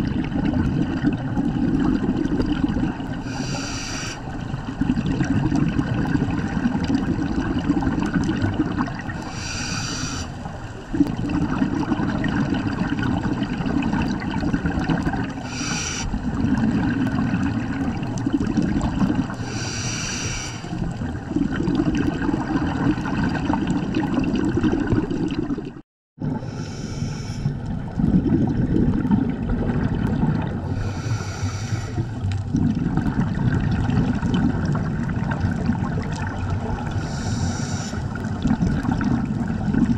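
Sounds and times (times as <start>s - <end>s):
exhaled bubbles gurgling: 0.0s - 39.9s
regulator inhale hiss: 3.2s - 4.4s, 9.2s - 10.8s, 15.4s - 16.2s, 19.4s - 20.8s, 26.4s - 27.6s, 30.7s - 32.2s, 36.9s - 38.2s.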